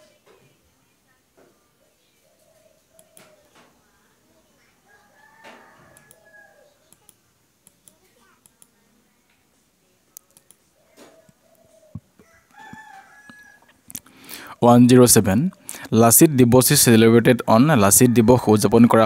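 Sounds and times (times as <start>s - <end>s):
faint clicks: 2.9s - 3.7s, 5.9s - 6.2s, 6.9s - 9.4s, 10.1s - 12.0s
distant rooster crowing: 4.8s - 7.0s, 10.9s - 14.4s, 16.1s - 19.0s.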